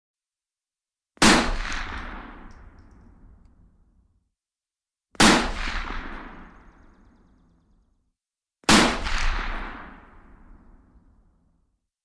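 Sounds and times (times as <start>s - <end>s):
rifle shots with echo: 1.2s - 3.3s, 5.2s - 7.1s, 8.7s - 10.7s.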